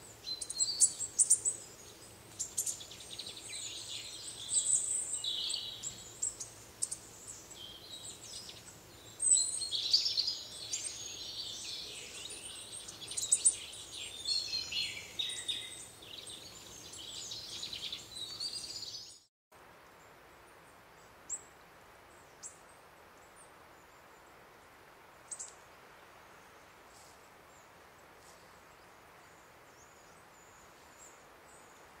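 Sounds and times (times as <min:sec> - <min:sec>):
songbirds chirping and singing: 0:00.1 - 0:19.2.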